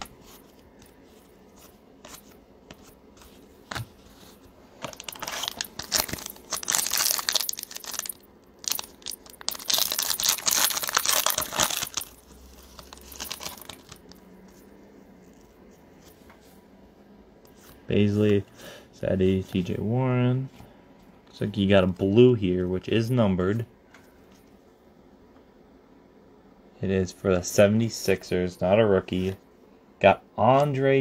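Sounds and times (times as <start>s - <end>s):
plastic wrapper tearing and crinkling: 4.8s - 14.2s.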